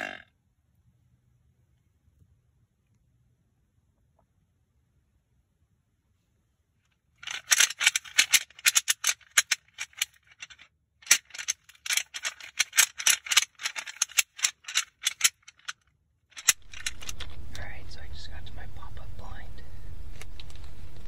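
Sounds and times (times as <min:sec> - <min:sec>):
rattle bag clicking and clattering: 0:07.2 - 0:17.6.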